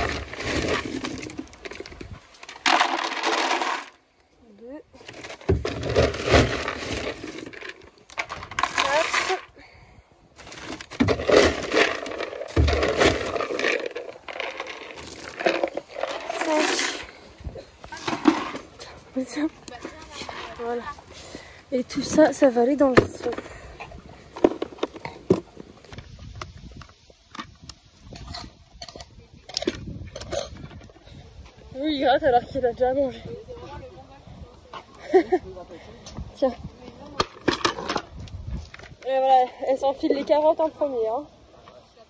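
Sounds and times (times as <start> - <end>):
feed pellets rattling: 0.0 - 4.0, 10.5 - 17.1
paper sack rustling: 0.0 - 4.0, 5.0 - 9.5, 10.4 - 17.2.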